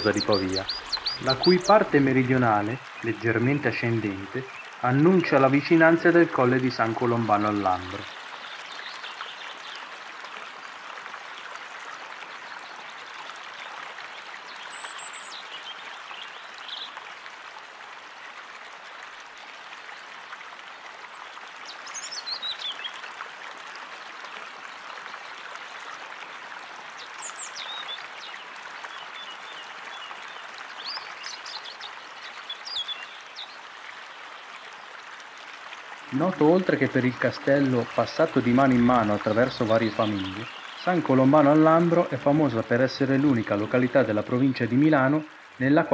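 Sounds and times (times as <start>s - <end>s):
short bird calls: 0.0s - 1.8s
flowing water: 0.0s - 45.9s.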